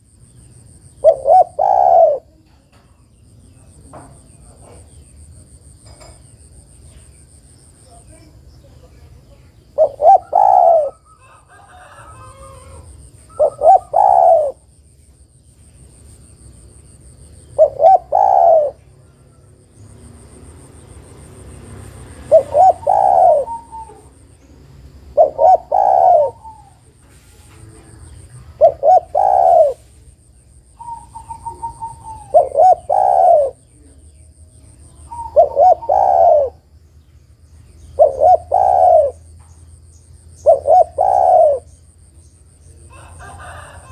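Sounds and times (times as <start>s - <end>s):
faint high insect-like whine: 0.0s - 43.9s
dove cooing: 0.9s - 2.6s, 9.6s - 14.7s, 17.4s - 19.5s, 22.1s - 30.2s, 30.8s - 36.7s, 37.8s - 39.4s, 40.4s - 41.8s.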